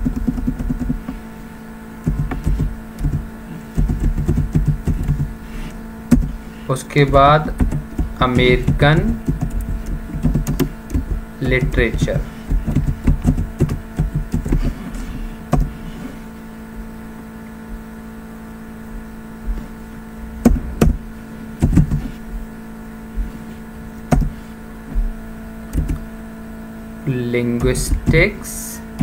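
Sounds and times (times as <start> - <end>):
low electrical hum: 0.0 - 29.0
keyboard and mouse clicks: 2.0 - 3.2, 7.1 - 14.6, 25.7 - 26.0.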